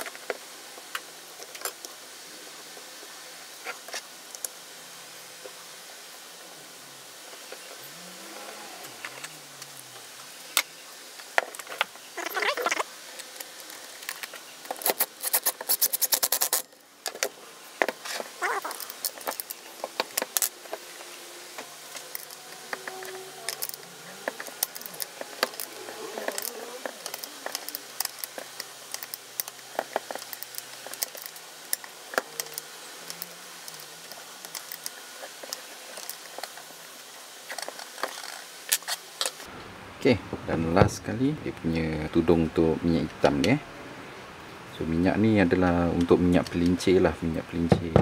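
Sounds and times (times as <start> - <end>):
plastic and metal parts clicking: 22.0 - 36.6.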